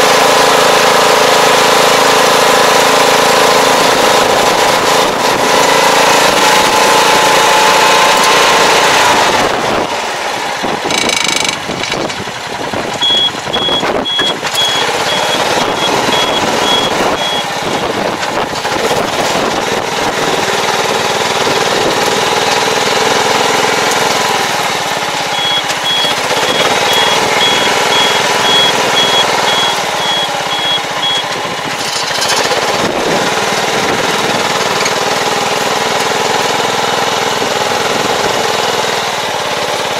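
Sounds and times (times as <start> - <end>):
tractor engine running: 0.0 - 39.9
high electronic beeper: 10.9 - 11.6, 13.0 - 18.0, 25.3 - 31.3.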